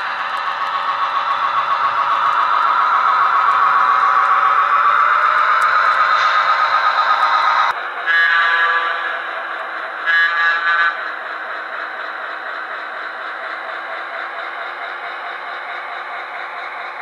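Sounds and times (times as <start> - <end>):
model train horn blasts: 8.0 - 9.2, 10.0 - 11.0.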